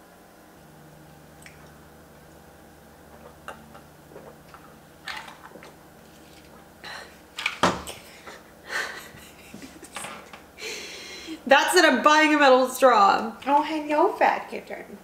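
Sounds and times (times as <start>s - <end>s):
sipping and swallowing: 1.3s - 1.9s, 3.0s - 7.4s.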